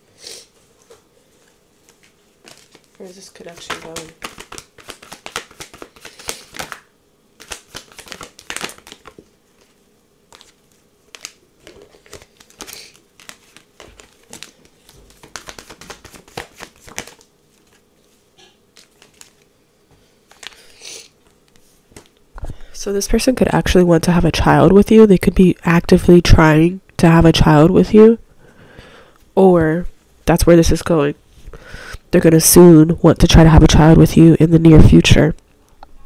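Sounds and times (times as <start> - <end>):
cards being shuffled: 0.9 - 17.9, 18.7 - 19.5, 20.2 - 22.2.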